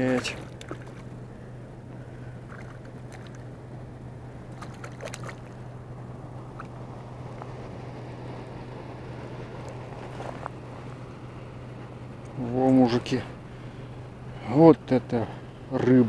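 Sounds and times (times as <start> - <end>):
fish splashing at water surface: 0.0 - 1.2, 2.3 - 3.5, 4.4 - 5.7
steady low hum: 0.0 - 16.0.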